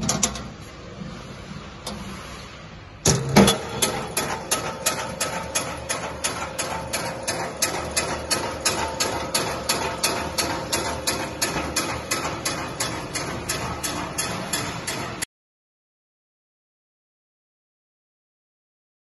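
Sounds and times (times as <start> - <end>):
rapid clacking of cutter: 3.4 - 15.3.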